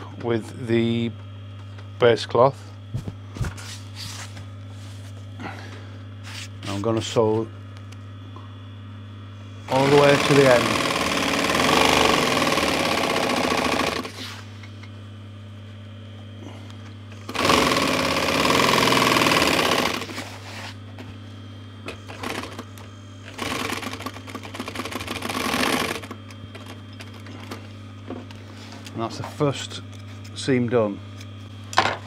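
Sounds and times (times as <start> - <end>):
sewing machine stitching: 9.7 - 14.2, 17.3 - 20.2, 23.3 - 26.7
sewing machine motor humming: 9.7 - 14.4, 17.2 - 20.4, 22.0 - 27.7.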